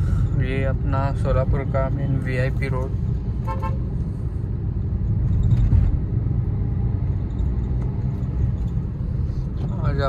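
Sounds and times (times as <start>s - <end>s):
road traffic rumble: 0.0s - 10.0s.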